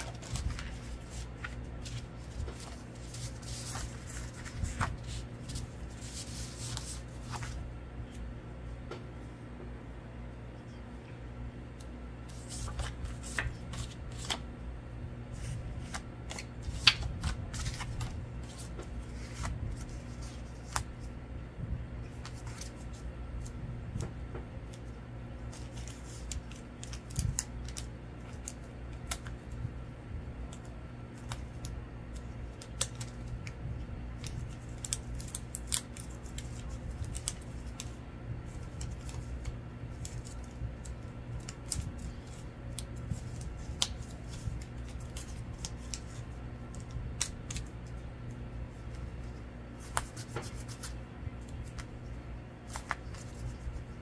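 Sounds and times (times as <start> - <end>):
paper rustling: 0.0 - 7.6, 12.3 - 14.4, 15.3 - 21.1, 22.1 - 23.5, 25.5 - 29.3, 34.2 - 48.0, 48.7 - 51.9, 52.6 - 54.0
low steady hum: 0.0 - 54.0
scissors snipping paper: 30.5 - 33.5, 34.2 - 47.9.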